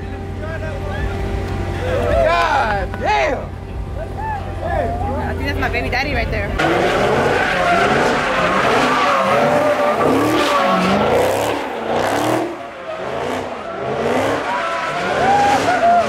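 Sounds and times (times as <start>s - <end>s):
car engine revving: 0.0s - 16.0s
tyres squealing on pavement: 6.6s - 16.0s.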